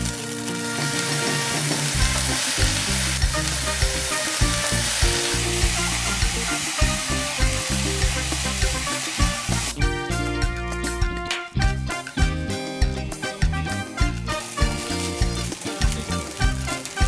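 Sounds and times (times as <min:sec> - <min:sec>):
rice sizzling in pan: 0:00.0 - 0:09.8, 0:14.3 - 0:17.0.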